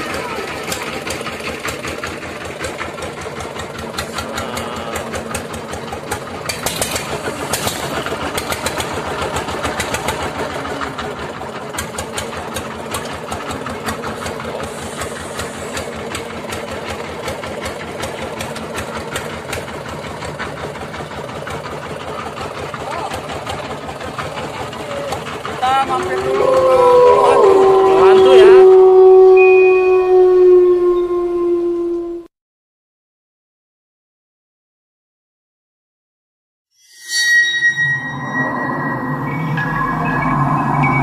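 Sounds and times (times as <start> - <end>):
small boat engine running: 0.0 - 32.3.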